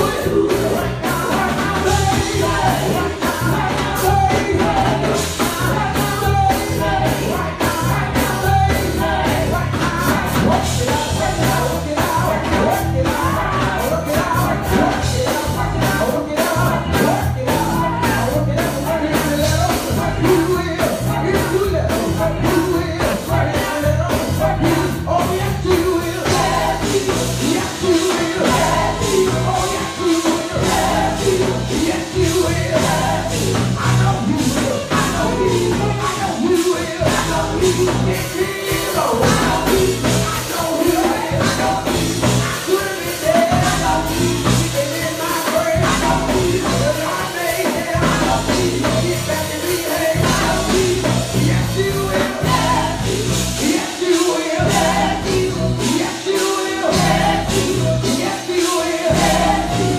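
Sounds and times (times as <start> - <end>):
gospel band playing: 0.0 - 59.9
man singing into microphone: 0.0 - 59.9.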